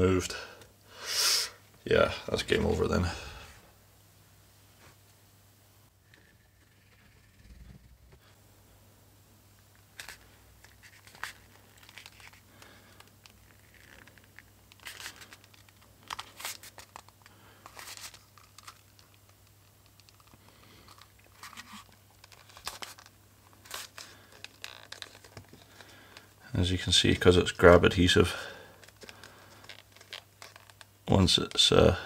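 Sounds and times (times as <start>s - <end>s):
leather sheath rustling and crackling: 9.8s - 26.4s, 28.8s - 31.0s.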